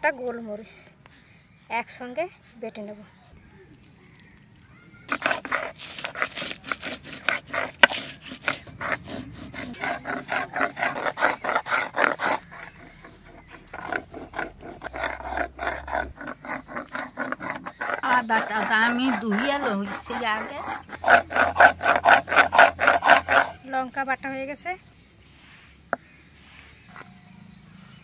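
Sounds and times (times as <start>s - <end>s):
grinding stone scraping: 5.0s - 23.7s.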